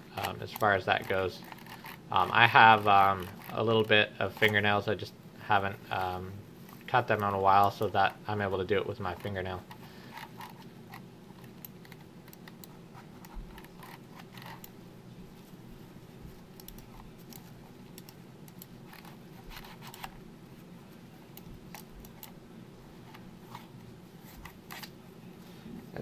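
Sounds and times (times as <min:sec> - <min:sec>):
low steady hum: 0:00.0 - 0:26.0
fingernail scratching plastic mouse: 0:09.1 - 0:14.7, 0:18.9 - 0:20.2.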